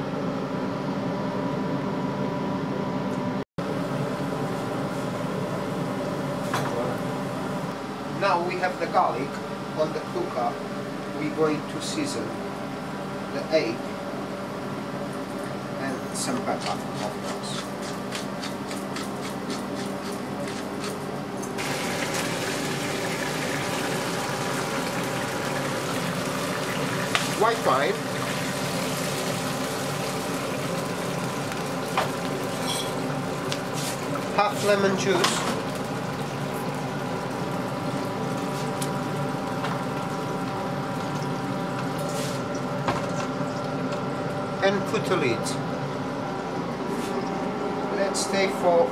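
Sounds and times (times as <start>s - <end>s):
garlic sizzling in oil: 21.6s - 34.7s.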